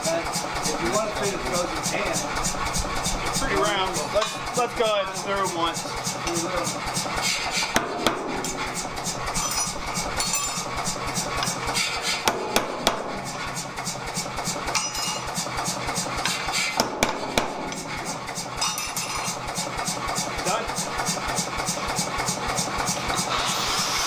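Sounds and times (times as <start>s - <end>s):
power hammer striking hot metal: 0.8s - 21.8s
low hum: 7.8s - 11.6s.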